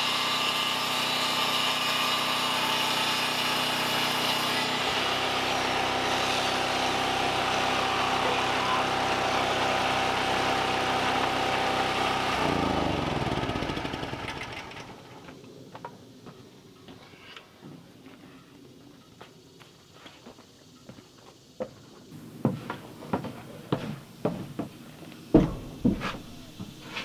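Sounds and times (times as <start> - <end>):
small engine idling: 4.8 - 15.2
knocks of wood being handled: 22.5 - 27.0.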